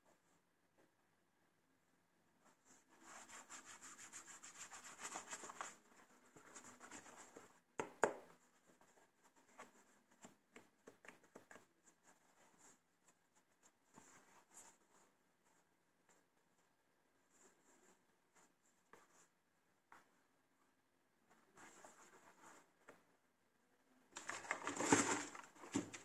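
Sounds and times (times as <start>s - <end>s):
rubbing and rustling in shoebox: 24.2s - 26.0s.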